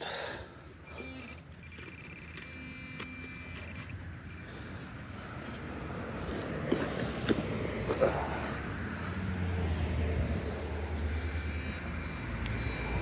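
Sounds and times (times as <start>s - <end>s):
metal detector electronic tone: 0.4s - 4.9s, 10.2s - 13.0s
soil scraping and clicking: 3.5s - 8.9s
low vehicle rumble: 4.2s - 13.0s.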